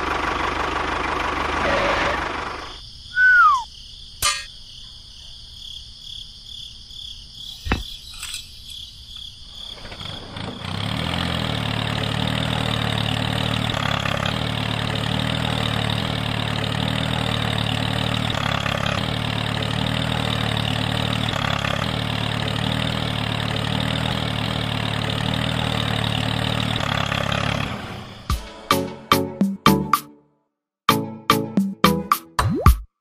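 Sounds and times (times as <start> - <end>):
tractor engine running: 0.0 - 2.8, 9.5 - 30.0.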